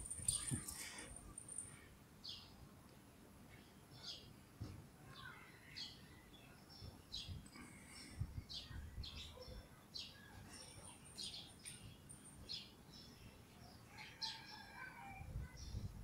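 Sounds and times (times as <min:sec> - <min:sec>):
bird chirping: 0:00.0 - 0:02.5.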